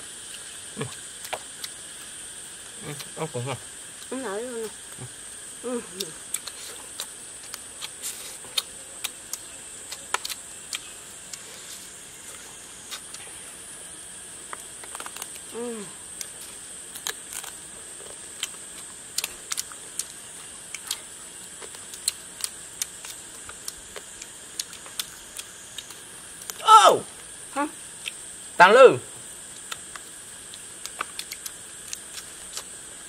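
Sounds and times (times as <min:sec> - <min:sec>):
high insect buzz: 0:00.0 - 0:33.0
person humming: 0:02.8 - 0:04.7, 0:05.6 - 0:06.2, 0:15.5 - 0:16.0
lip smacks and chewing: 0:02.9 - 0:03.2, 0:06.0 - 0:11.5, 0:18.3 - 0:26.6, 0:29.5 - 0:33.0.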